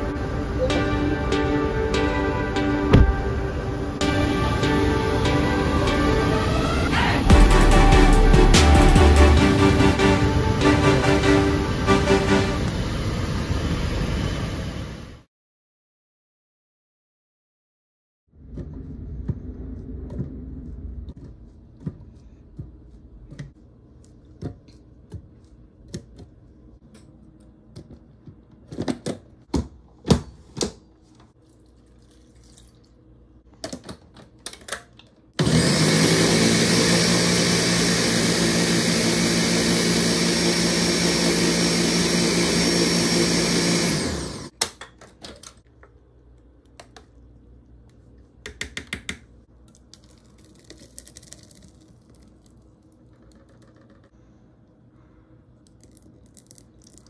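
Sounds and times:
blender running: 0:05.4 - 0:13.4, 0:35.4 - 0:44.5.

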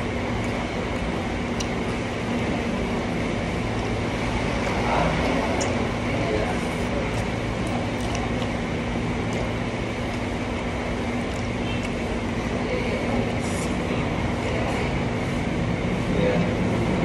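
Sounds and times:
steady mechanical hum: 0:00.0 - 0:17.0
person chewing food: 0:06.8 - 0:12.0.

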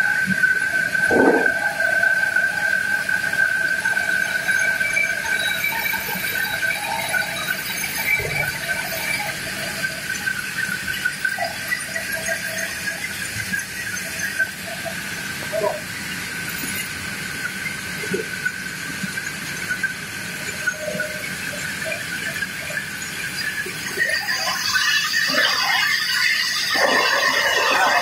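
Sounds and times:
band saw whining: 0:20.6 - 0:28.0.

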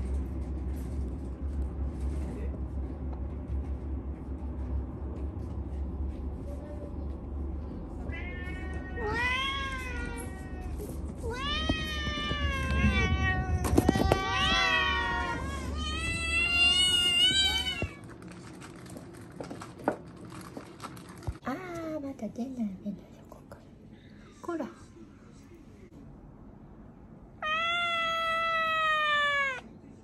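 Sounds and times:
low steady hum: 0:00.0 - 0:28.6
kitten meowing: 0:27.4 - 0:29.6.

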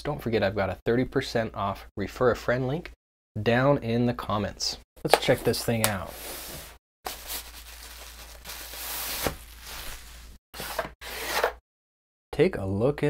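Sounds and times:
packaging rustling and tearing: 0:05.2 - 0:10.8.

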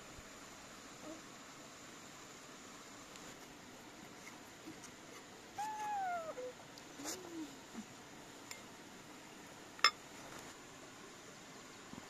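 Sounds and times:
short falling calls: 0:05.6 - 0:06.5.

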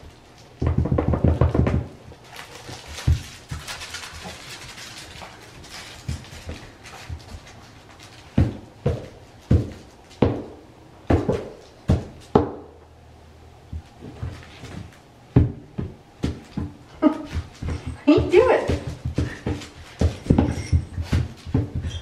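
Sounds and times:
puppy pouncing on a toy: 0:15.4 - 0:22.0.

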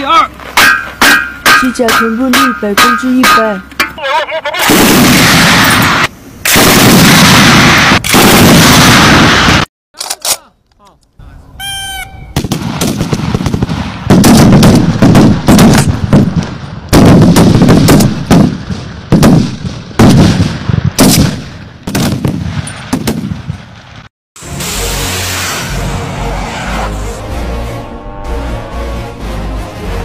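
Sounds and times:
rifle shots with echo: 0:04.6 - 0:09.5, 0:12.4 - 0:23.9
brief high-pitched tone: 0:24.4 - 0:29.2.

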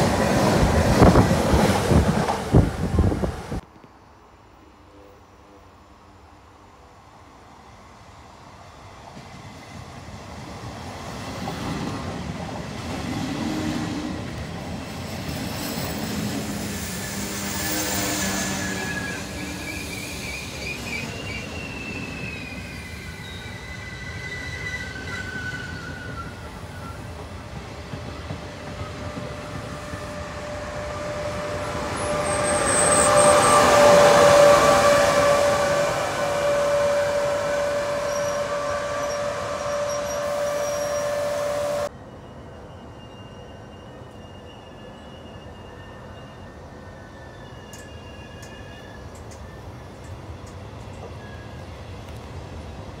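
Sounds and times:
train rolling past: 0:00.0 - 0:03.6, 0:07.0 - 0:53.0
high wheel squeal: 0:15.0 - 0:27.2, 0:28.7 - 0:50.0, 0:51.0 - 0:51.8.

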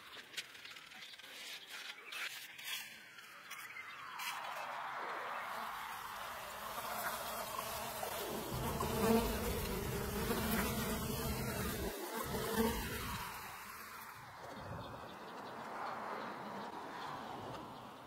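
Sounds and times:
insect buzzing: 0:05.9 - 0:14.4.

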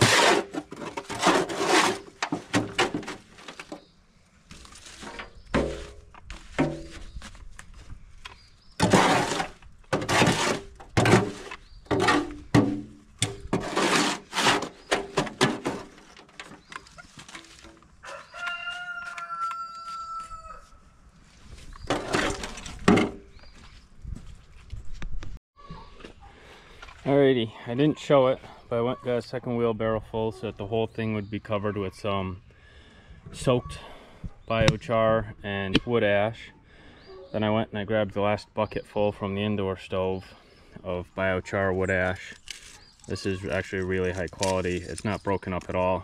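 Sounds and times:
crunching and scraping of ash: 0:00.0 - 0:23.6, 0:41.8 - 0:46.0
rooster crowing: 0:18.0 - 0:20.8.

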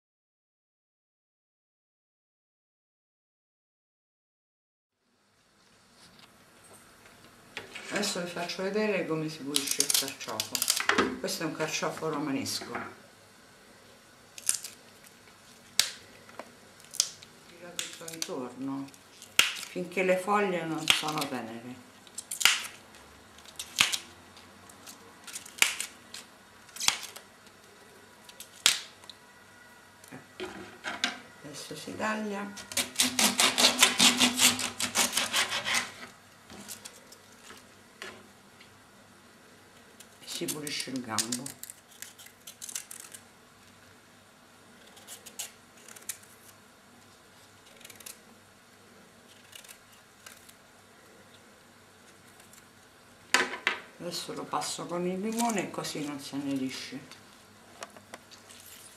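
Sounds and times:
small crackles: 0:09.5 - 0:10.9, 0:14.3 - 0:19.8, 0:22.0 - 0:29.2, 0:36.5 - 0:37.8, 0:39.7 - 0:43.9, 0:44.8 - 0:48.3, 0:49.2 - 0:52.9, 0:57.2 - 0:58.9
artichoke leaves snapping: 0:09.5 - 0:11.0, 0:14.4 - 0:19.9, 0:20.7 - 0:21.4, 0:22.0 - 0:29.2, 0:39.9 - 0:43.3, 0:44.8 - 0:46.6, 0:47.6 - 0:48.3, 0:49.3 - 0:50.6, 0:52.1 - 0:52.7, 0:54.8 - 0:56.6
knife scraping artichoke skin: 0:32.6 - 0:37.2, 0:40.2 - 0:43.3, 0:44.7 - 0:46.6, 0:47.4 - 0:48.3, 0:49.2 - 0:50.6.

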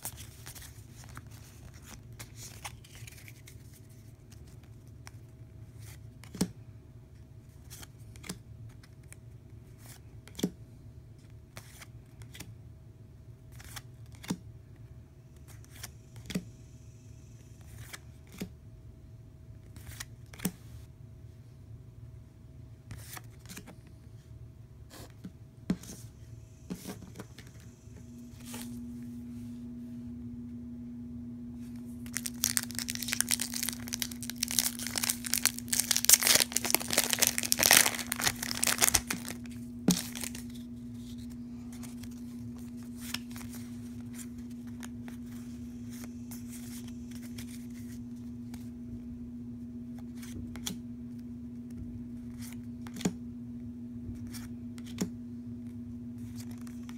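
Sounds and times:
steady low hum: 0:00.0 - 0:56.9
foil wrapper tearing and crinkling: 0:32.0 - 0:40.5.

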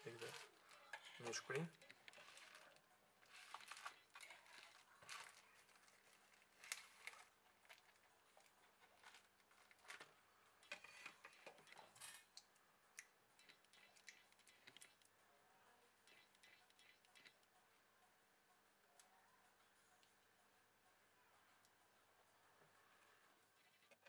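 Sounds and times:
bubble-wrap bag rustling: 0:00.0 - 0:10.2.

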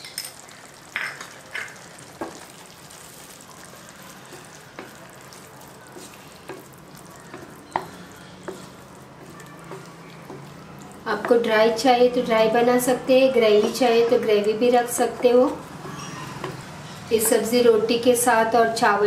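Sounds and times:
curry sizzling: 0:00.0 - 0:19.0
spatula scraping and knocking pan: 0:05.9 - 0:11.5.

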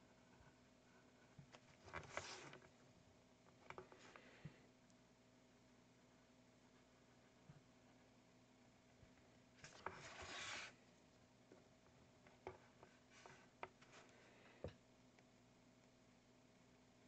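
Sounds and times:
paintbrush rubbing scrape: 0:09.6 - 0:10.8.

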